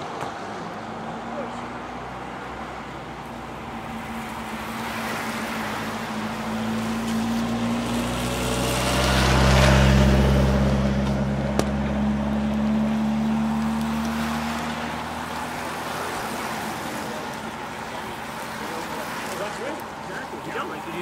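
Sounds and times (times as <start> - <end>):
tyres hissing on wet road: 0.0 - 21.0
motorcycle driving past: 3.9 - 17.2.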